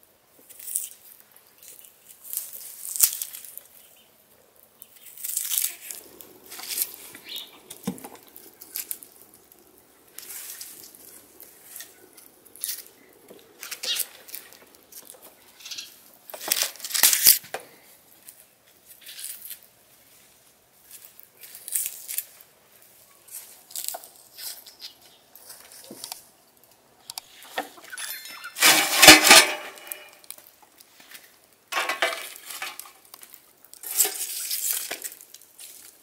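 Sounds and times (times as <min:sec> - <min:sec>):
onion skins rustling and crackling: 0:00.3 - 0:36.0.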